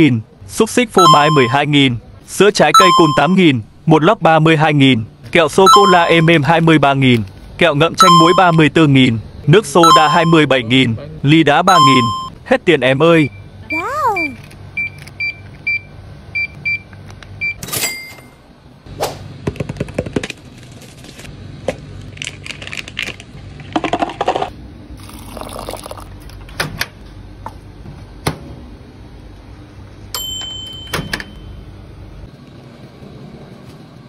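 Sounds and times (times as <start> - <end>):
checkout scanner beeps: 1.0 - 1.6, 2.7 - 3.4, 5.6 - 6.5, 8.0 - 8.6, 9.8 - 10.5, 11.7 - 12.4, 13.2 - 18.4, 30.2 - 31.6
microwave oven long beep: 1.0 - 1.7, 2.7 - 3.4, 5.6 - 6.5, 8.0 - 8.6, 9.8 - 10.8, 11.6 - 12.4, 13.1 - 13.8, 14.7 - 18.5, 30.1 - 32.0
plastic packaging crinkling: 22.1 - 23.4.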